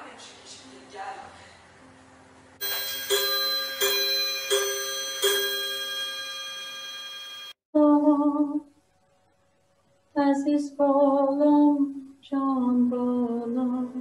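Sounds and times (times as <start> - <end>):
bell chiming: 2.6 - 7.6.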